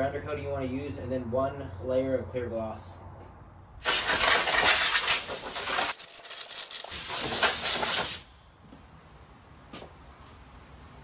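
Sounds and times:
compressed air blow gun hissing: 3.8s - 8.3s.

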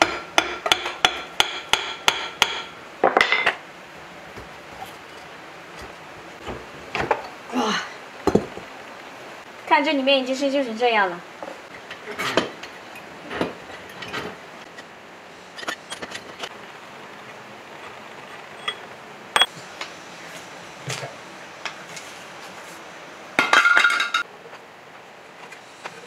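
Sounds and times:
metal clinks and knocks: 18.3s - 19.5s.

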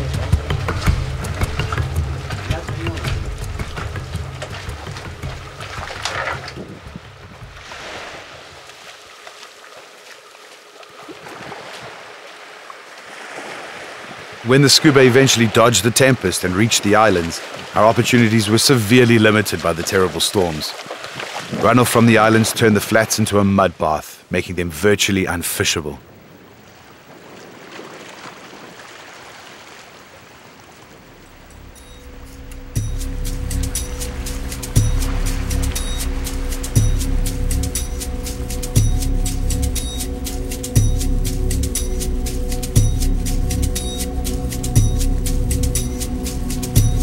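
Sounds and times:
water rushing and lapping: 0.0s - 47.0s
wind hissing: 30.5s - 47.0s.

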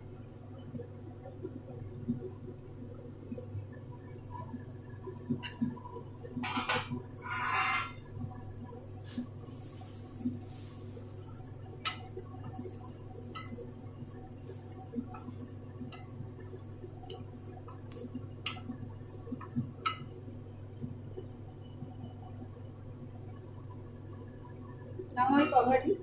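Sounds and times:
spatula clinking and scraping pan: 7.2s - 8.0s.

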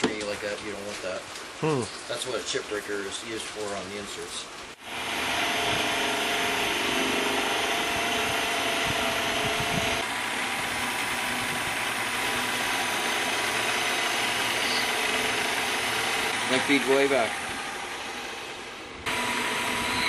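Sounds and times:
lathe motor humming and whining: 4.8s - 20.0s.

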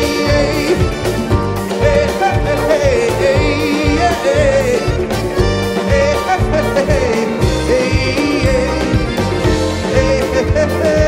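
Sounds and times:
drum beat: 0.0s - 11.0s
electric guitar: 0.0s - 11.0s
man singing: 0.0s - 11.0s.

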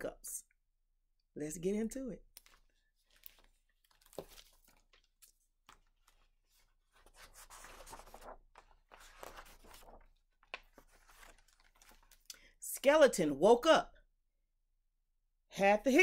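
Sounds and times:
book pages rustling: 2.3s - 12.3s.

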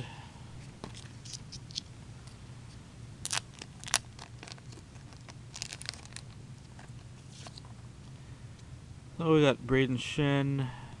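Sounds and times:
plastic packaging crinkling: 3.2s - 7.7s.

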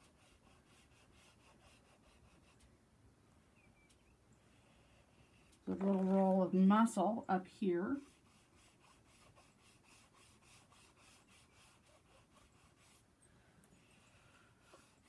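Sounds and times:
pastel scrubbing on paper: 0.0s - 2.6s, 7.9s - 13.1s.

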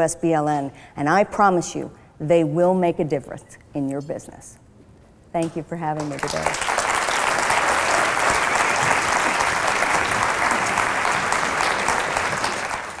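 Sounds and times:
audience applauding: 6.1s - 13.0s.

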